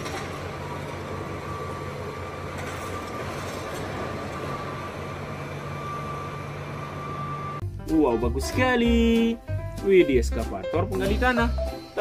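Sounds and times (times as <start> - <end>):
excavator diesel engines running: 0.0 - 7.6
thin high whine: 0.6 - 7.6.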